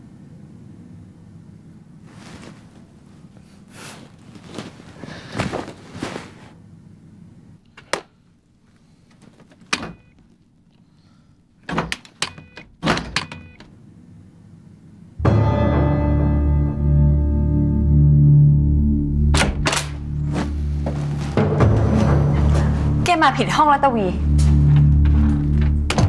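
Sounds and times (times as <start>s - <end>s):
soft rustling: 2.0s - 6.6s
door lock and handle clicks: 11.6s - 13.7s.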